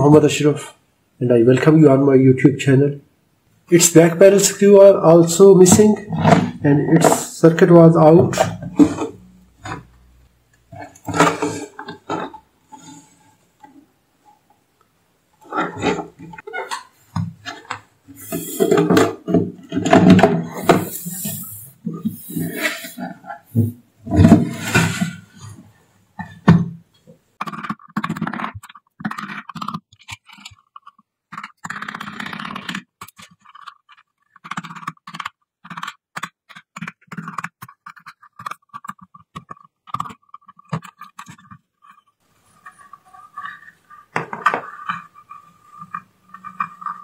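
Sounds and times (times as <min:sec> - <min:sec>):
metal tool scraping hardened glue: 0:15.4 - 0:25.6, 0:27.4 - 0:47.0.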